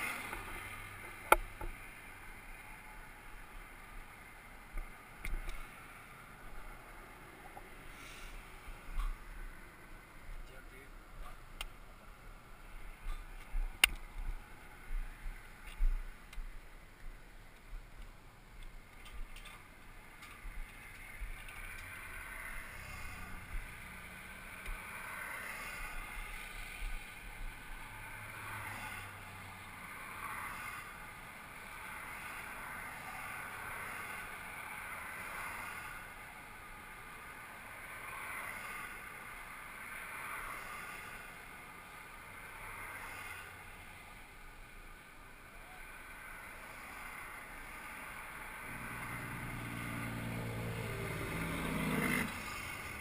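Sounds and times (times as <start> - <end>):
road traffic passing: 0.0 - 53.0.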